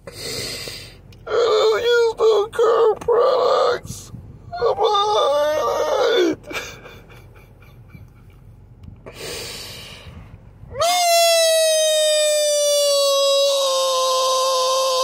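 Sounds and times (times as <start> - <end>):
man wailing: 1.3 - 3.8, 4.5 - 6.6, 10.7 - 15.0.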